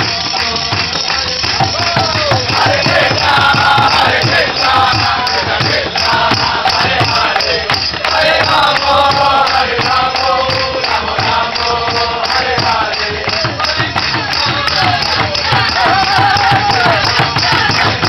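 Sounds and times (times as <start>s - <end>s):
fast percussion beat: 0.0s - 18.0s
group singing a chant: 0.0s - 18.0s.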